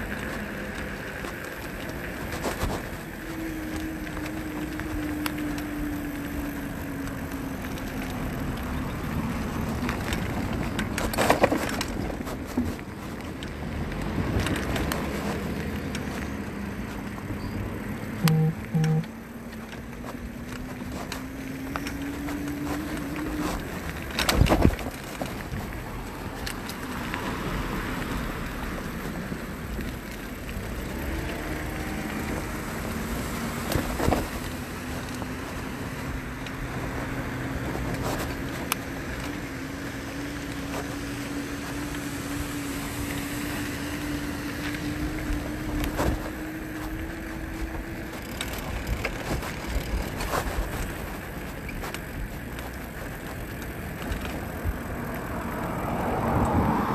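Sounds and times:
road and wind noise: 0.0 - 56.9
electric motor whining: 18.2 - 19.1.

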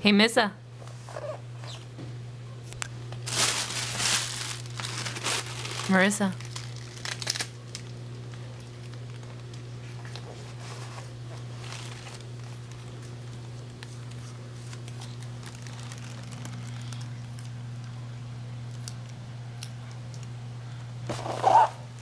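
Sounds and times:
steady low hum: 0.0 - 22.0
sticker backing paper rustling: 3.2 - 7.4, 10.0 - 17.5.

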